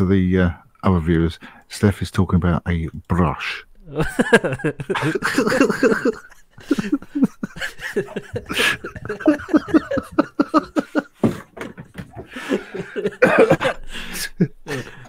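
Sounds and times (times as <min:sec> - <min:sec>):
men talking indistinctly: 0:00.0 - 0:05.9
men laughing: 0:03.8 - 0:15.0.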